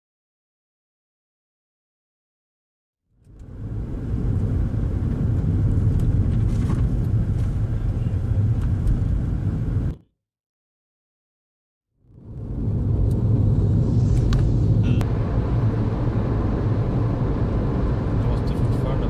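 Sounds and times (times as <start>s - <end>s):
road and engine noise inside car: 3.2s - 10.0s, 12.0s - 19.0s.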